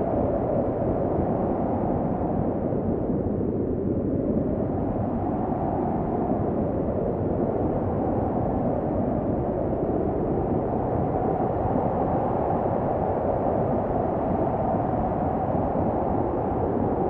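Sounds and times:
snowstorm wind blowing: 0.0 - 17.0.

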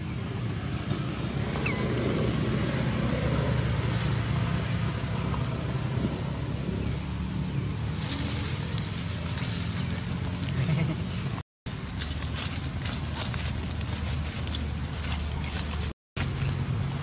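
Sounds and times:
dry leaves rustling: 6.4 - 17.0.

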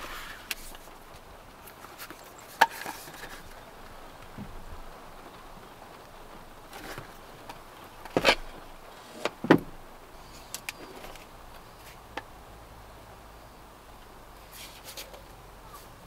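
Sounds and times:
steady low hiss: 0.0 - 16.0.

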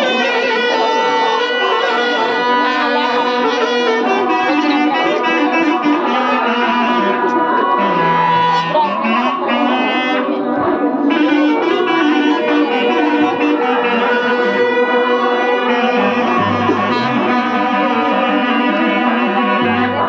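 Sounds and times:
bass line: 0.0 - 20.0
wind instrument melody: 0.0 - 20.0.

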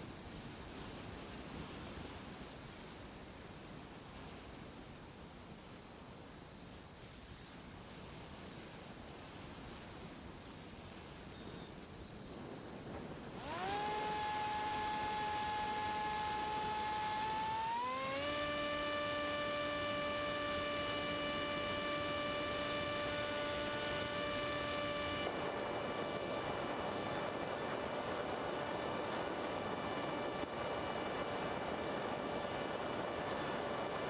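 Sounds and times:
model plane motor whine: 13.0 - 34.0.

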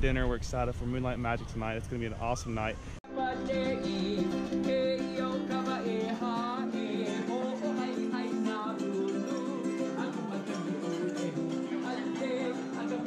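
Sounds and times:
ukulele playing: 3.1 - 13.0
man singing: 3.5 - 13.0.

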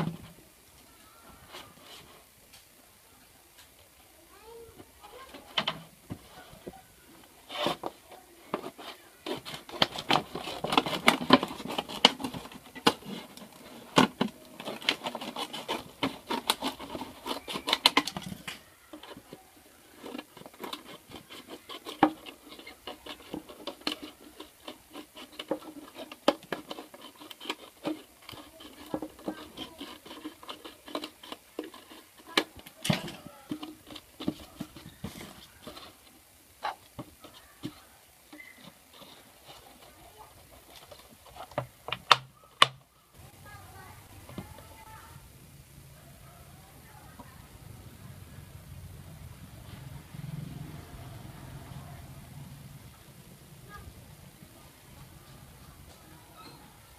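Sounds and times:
plastic bottle crackling: 5.1 - 42.8.

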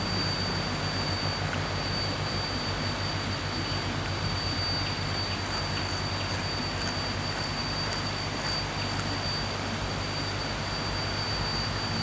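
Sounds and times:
thin high tone: 0.0 - 12.0
chewing clicks: 5.4 - 9.2.

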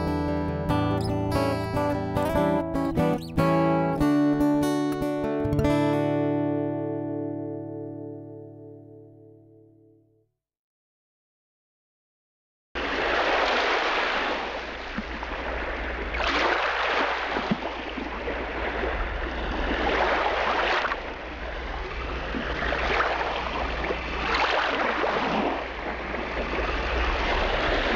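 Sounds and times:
ocean surf washing in: 12.8 - 27.9.

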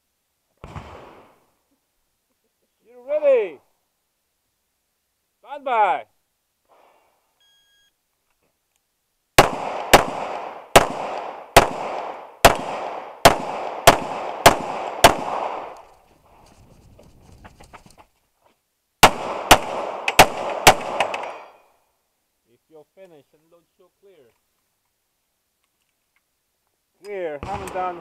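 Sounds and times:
pistol shots: 9.4 - 15.8, 19.0 - 21.5.

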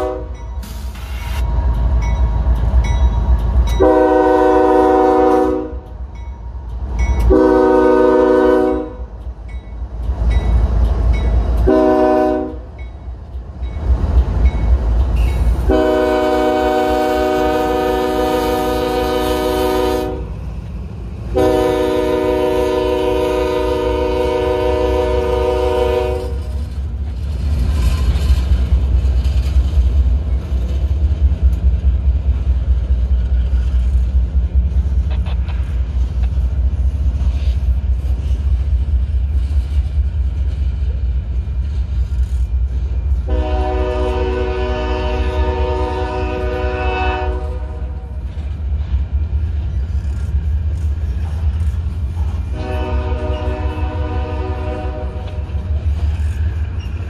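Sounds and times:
locomotive air horn blasts: 0.0 - 0.4, 3.8 - 5.8, 7.3 - 9.1, 11.6 - 12.6, 15.7 - 20.3, 21.3 - 26.6, 43.2 - 48.1, 52.5 - 55.5
train wheels clattering: 0.0 - 19.5, 20.3 - 47.4, 48.1 - 57.0
diesel locomotive rumble: 0.0 - 57.0.

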